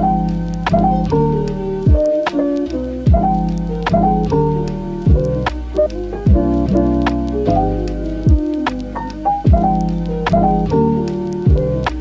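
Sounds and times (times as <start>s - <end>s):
mellow keyboard chords: 0.0s - 12.0s
deep kick drum: 0.7s - 2.2s, 3.1s - 7.3s, 8.2s - 8.6s, 9.5s - 12.0s.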